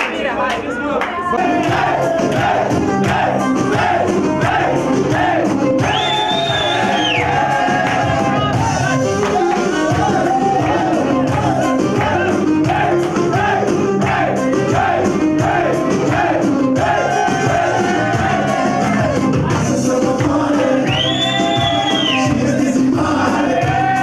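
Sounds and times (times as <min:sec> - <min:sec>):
loud dance music: 0:00.0 - 0:24.0.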